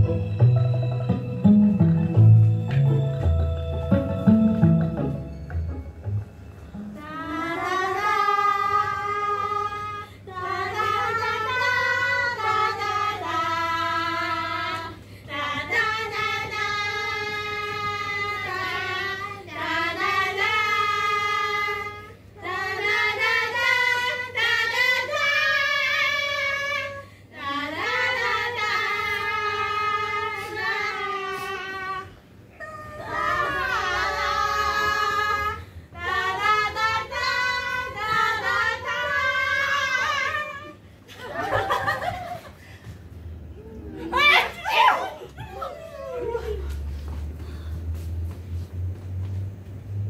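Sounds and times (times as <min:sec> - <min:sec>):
singer breathing: 0:42.6 - 0:43.2, 0:47.3 - 0:48.2.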